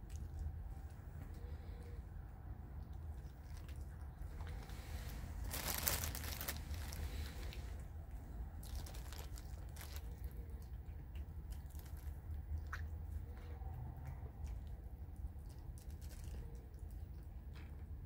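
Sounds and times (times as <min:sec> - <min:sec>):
low steady hum: 0:00.0 - 0:18.0
plastic bag crinkling: 0:03.4 - 0:07.6, 0:08.6 - 0:10.4, 0:15.8 - 0:16.5
cat chewing: 0:05.6 - 0:17.8.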